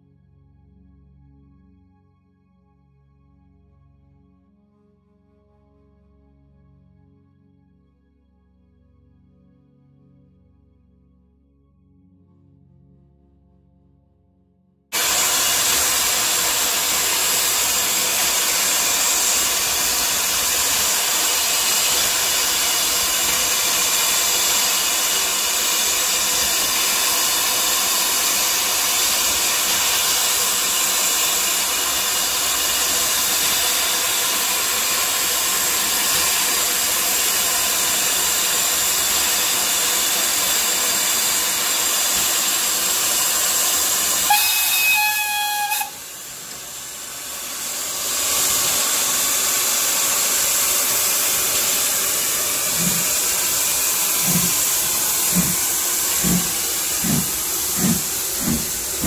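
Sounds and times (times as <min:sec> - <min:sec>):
locomotive steam hissing: 0:14.9 - 0:59.0
steam whistle: 0:15.0 - 0:55.6.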